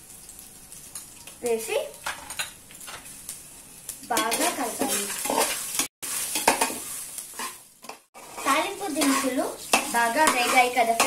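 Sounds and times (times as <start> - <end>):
spices sizzling in hot oil: 0.0 - 11.0
spatula scraping a metal pot: 4.2 - 11.0.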